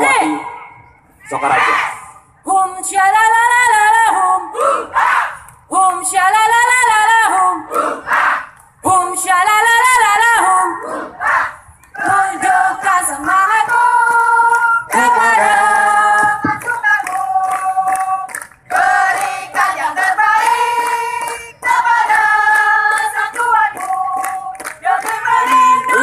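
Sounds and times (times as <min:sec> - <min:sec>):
group of voices chanting: 0:04.5 - 0:05.4, 0:07.7 - 0:08.5, 0:10.7 - 0:12.9, 0:25.1 - 0:26.0.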